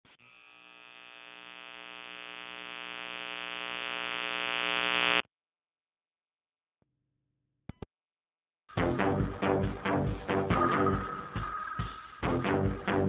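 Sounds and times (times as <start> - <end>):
buzzing electronic drone: 0.1 - 5.2.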